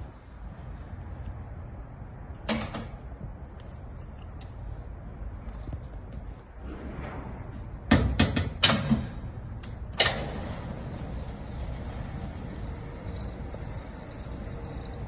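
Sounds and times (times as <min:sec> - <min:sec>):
metal gate clanking: 0:07.9 - 0:13.0
hoist motor running: 0:08.6 - 0:15.0.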